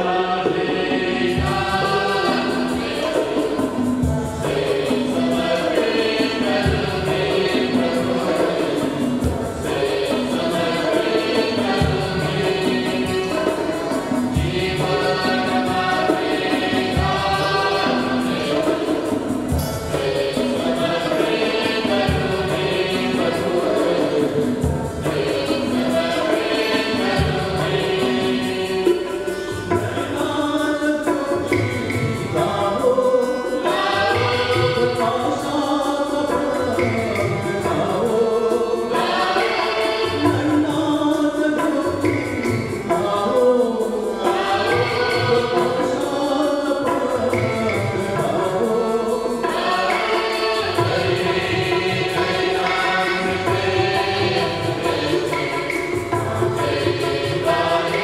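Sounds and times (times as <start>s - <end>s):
choir singing a hymn: 0.0s - 58.0s.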